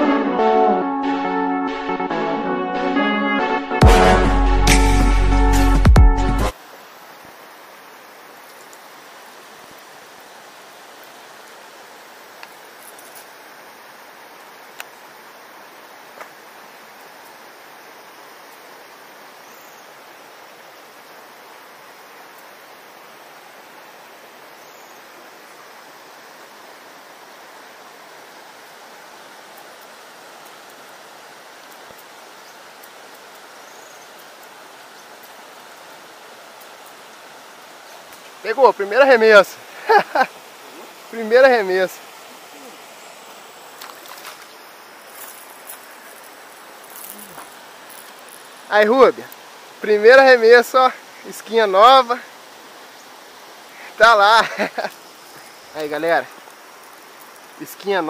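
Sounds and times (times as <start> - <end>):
river water over rocks: 6.5 - 58.0
faint ticks: 12.4 - 13.3, 14.7 - 15.0, 16.2 - 16.4, 31.6 - 34.6, 56.3 - 57.6
faint chirp: 42.3 - 43.2.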